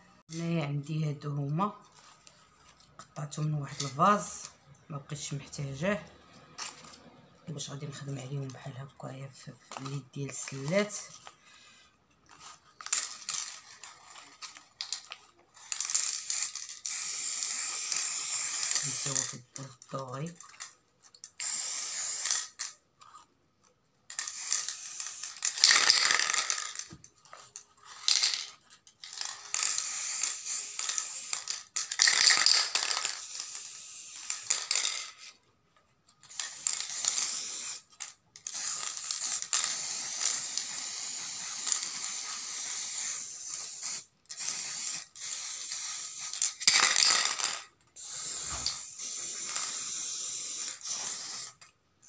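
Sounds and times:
spray can hissing: 15.7 - 19.3, 21.4 - 22.6, 24.1 - 26.8, 29.5 - 34.9, 36.3 - 37.9, 38.5 - 46.8, 48.0 - 51.6.

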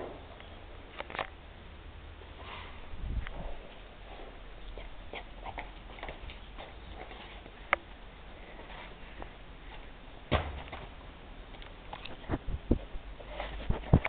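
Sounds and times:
deep bumps: 10.3 - 11.2.

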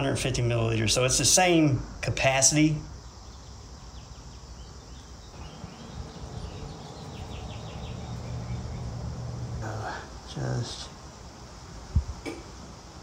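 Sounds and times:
low steady hum: 5.2 - 12.4.

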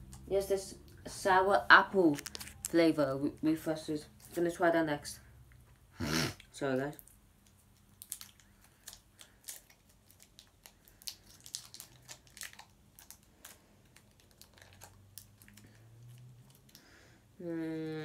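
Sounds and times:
sweet wrapper crinkling and tearing: 2.0 - 2.9, 7.0 - 16.9.

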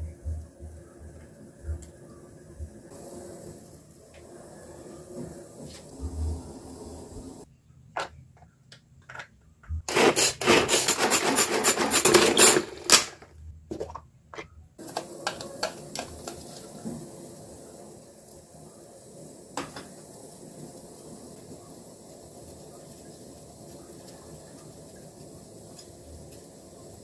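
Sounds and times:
plastic gadget grinding garlic: 9.9 - 13.0.

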